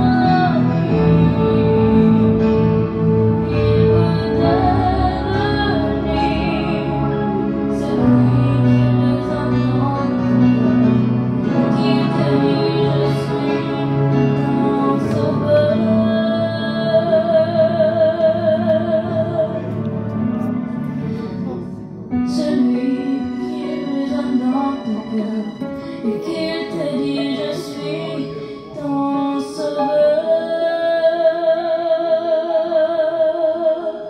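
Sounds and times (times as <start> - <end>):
instrumental accompaniment: 0.0 - 31.5
girl singing a hymn: 26.1 - 34.0.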